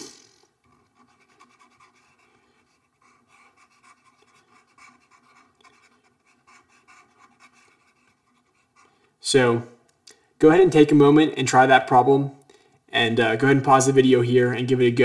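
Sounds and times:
stylus scratching and tapping on tablet: 0.6 - 9.2.

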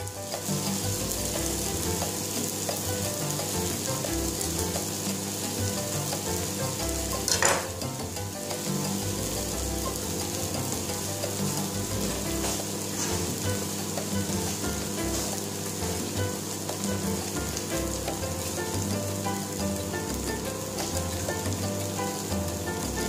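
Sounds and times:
food sizzling in frying pan: 0.0 - 23.0.

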